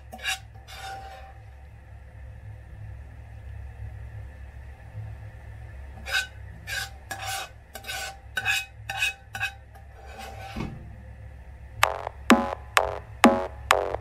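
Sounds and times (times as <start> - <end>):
metal ladle scraping a wok: 0.1 - 1.4, 6.0 - 10.6.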